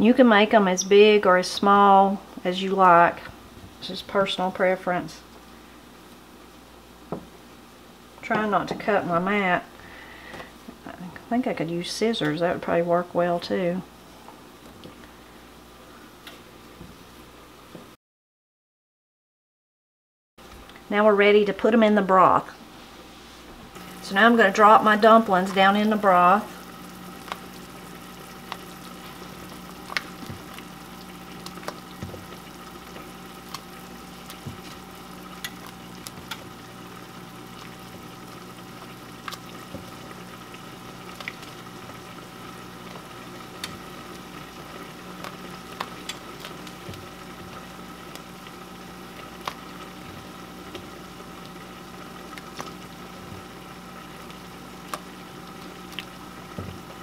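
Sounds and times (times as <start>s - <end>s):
steady hum: 20.5s - 57.0s
broth bubbling in a pot: 23.7s - 57.0s.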